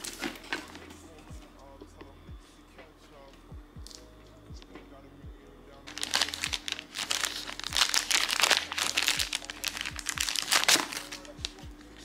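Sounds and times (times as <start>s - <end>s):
plastic zip bag crinkling: 0.0s - 0.8s, 5.9s - 12.0s.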